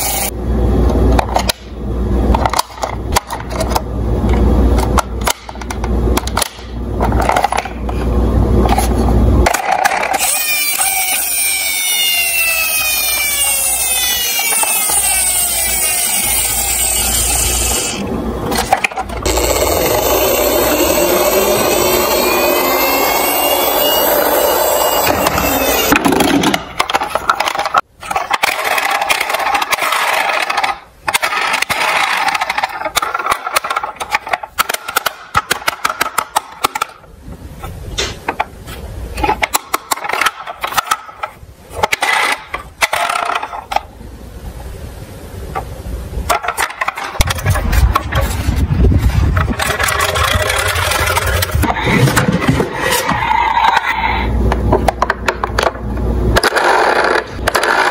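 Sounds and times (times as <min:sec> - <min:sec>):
plastic toy vehicles clattering: 0:02.3 - 0:08.0, 0:08.6 - 0:16.9, 0:18.5 - 0:21.0, 0:25.1 - 0:37.0, 0:39.2 - 0:43.9, 0:46.3 - 0:48.5, 0:49.4 - 0:53.8, 0:56.4 - 0:57.9
toy rolling on wooden board: 0:02.3 - 0:37.0, 0:39.2 - 0:43.9, 0:46.3 - 0:55.8, 0:56.4 - 0:57.9
toy electronic siren wailing: 0:10.2 - 0:18.0, 0:19.2 - 0:26.2.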